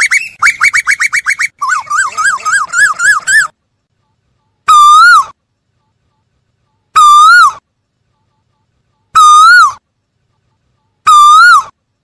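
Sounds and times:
koel calling: 0.0s - 3.5s.

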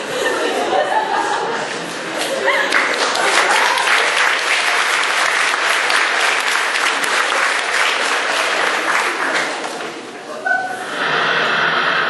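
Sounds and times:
audience applauding: 1.9s - 10.1s.

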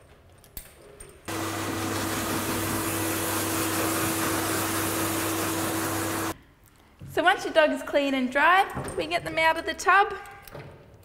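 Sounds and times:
blow dryer air rushing: 1.3s - 6.4s.

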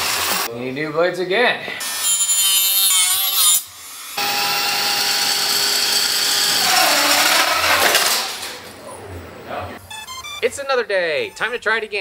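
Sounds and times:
rotary tool motor whining: 4.2s - 8.2s.

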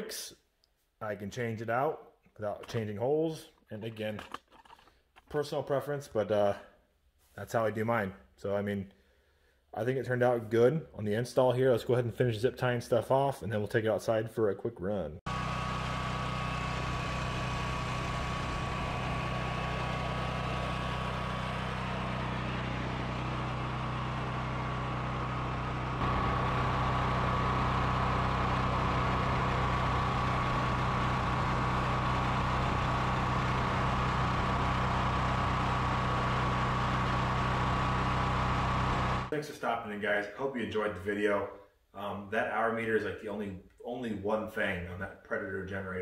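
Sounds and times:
generator engine running: 15.3s - 39.3s.

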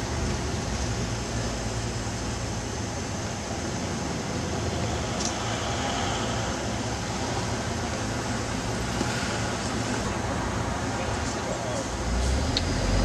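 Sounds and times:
buses passing: 0.0s - 13.0s
cars passing: 3.6s - 13.0s.

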